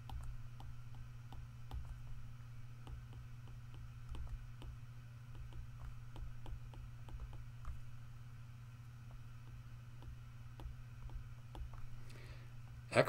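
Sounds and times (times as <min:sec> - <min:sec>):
stylus tapping on glass screen: 0:00.0 - 0:02.2, 0:02.8 - 0:08.0, 0:09.1 - 0:12.0
low hum: 0:00.0 - 0:13.0.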